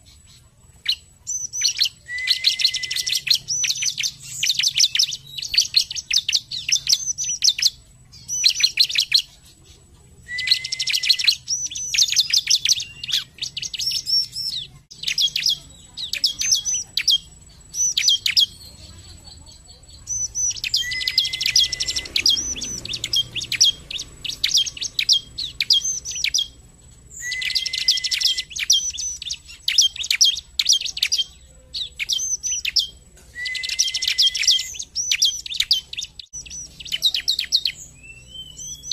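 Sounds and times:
bird high rapid chirping: 0:00.0 - 0:38.9
bird low whistle: 0:01.3 - 0:07.7, 0:10.3 - 0:15.5, 0:20.1 - 0:26.6, 0:27.2 - 0:31.1, 0:32.0 - 0:38.9.

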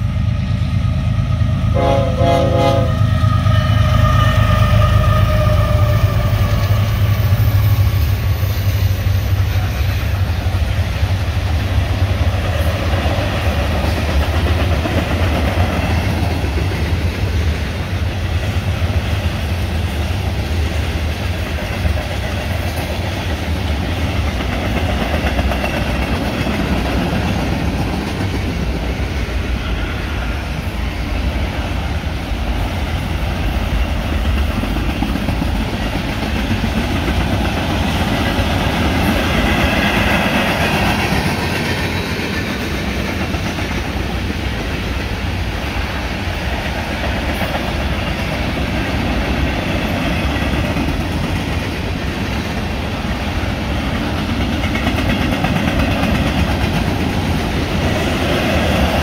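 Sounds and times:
train wheels rolling on rails: 0:00.0 - 0:59.0
train horn: 0:01.4 - 0:08.0.

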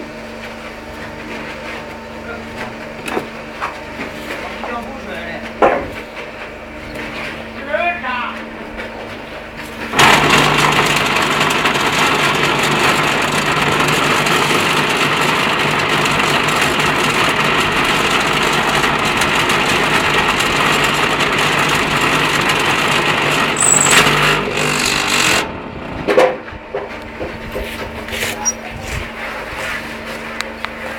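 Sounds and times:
electric motor buzzing rattle: 0:10.0 - 0:25.6.

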